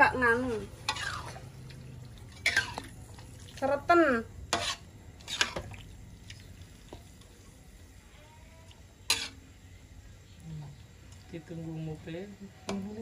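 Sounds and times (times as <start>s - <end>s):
wet stirring in a wok: 0.0s - 13.0s
spatula clinking and scraping pan: 0.3s - 1.5s, 2.3s - 3.0s, 4.5s - 5.8s, 9.0s - 9.5s.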